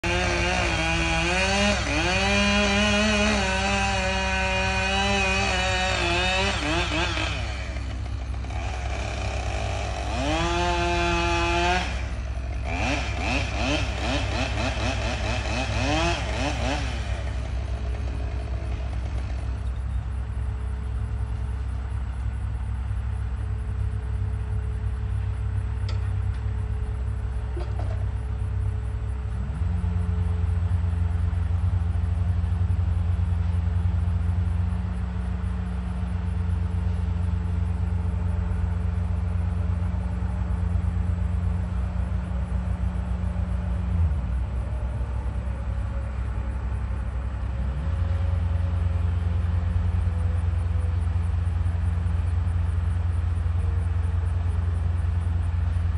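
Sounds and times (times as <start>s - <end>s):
heavy truck engine running: 0.0s - 55.9s.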